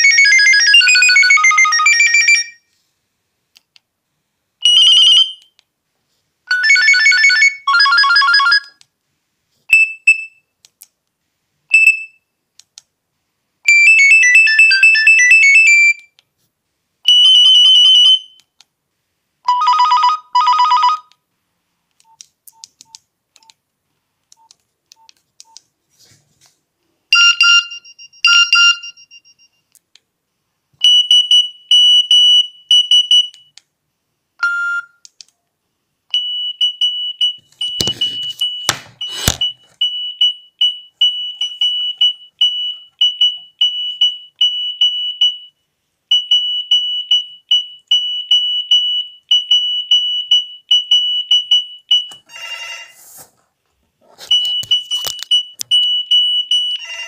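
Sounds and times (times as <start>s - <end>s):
phone ringtone melodies: 0.0s - 2.6s, 6.5s - 8.8s, 13.7s - 16.0s, 19.5s - 21.1s.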